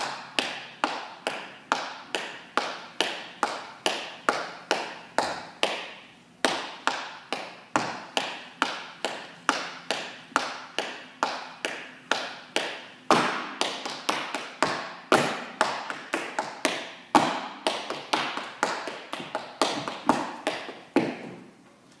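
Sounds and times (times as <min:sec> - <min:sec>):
hard-soled dance steps on floor: 0:00.0 - 0:21.6
loud foot stamp: 0:13.1 - 0:21.5.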